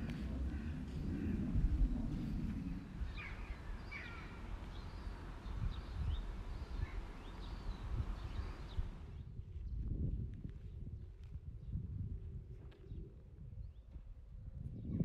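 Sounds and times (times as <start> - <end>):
low rumble: 0.0 - 6.5
birds chirping: 0.0 - 9.0.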